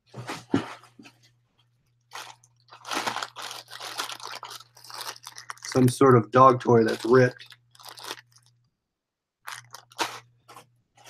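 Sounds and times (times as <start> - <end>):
plastic bags crinkling: 2.1 - 8.6, 9.4 - 10.3.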